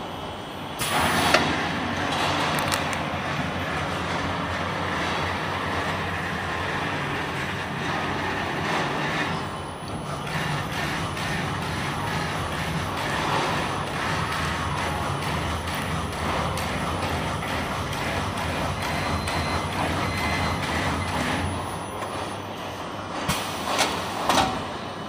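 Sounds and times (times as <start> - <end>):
bubble pouch machine running: 0.1 - 24.6.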